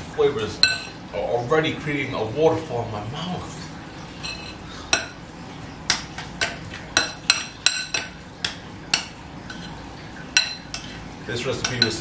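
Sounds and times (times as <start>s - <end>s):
metal spoon clinking against pan: 0.6s - 1.0s, 5.9s - 9.7s, 10.4s - 10.9s, 11.6s - 12.0s.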